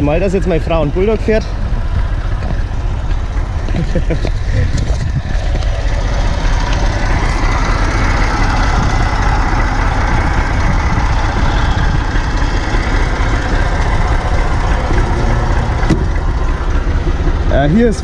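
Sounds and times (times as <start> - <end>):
tractor diesel engine idling: 0.0 - 18.0.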